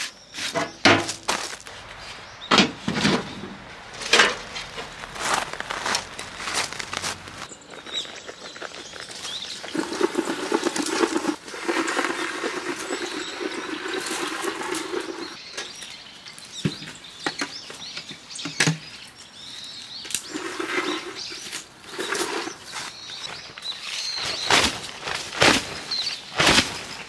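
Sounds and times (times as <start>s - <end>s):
dog paws scuffling on groundsheet: 3.9s - 7.5s.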